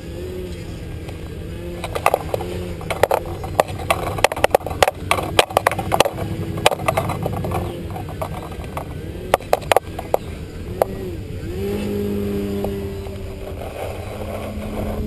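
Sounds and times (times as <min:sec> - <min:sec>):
model airplane engine revving: 0:00.0 - 0:15.0
sharp irregular clicks: 0:01.0 - 0:11.0.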